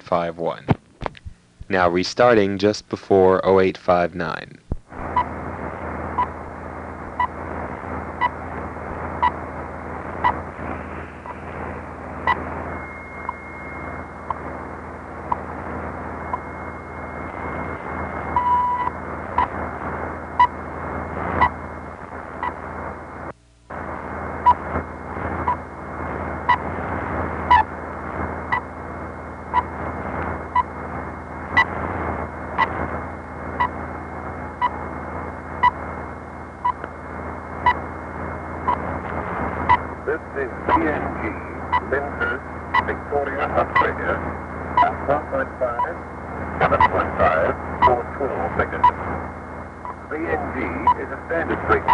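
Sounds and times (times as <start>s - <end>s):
radio static hiss: 0.0s - 51.9s
time signal ticks: 12.2s - 14.5s, 15.2s - 15.5s, 16.2s - 19.6s, 32.6s - 32.8s, 36.6s - 37.0s
thin steady whistle: 12.3s - 14.4s.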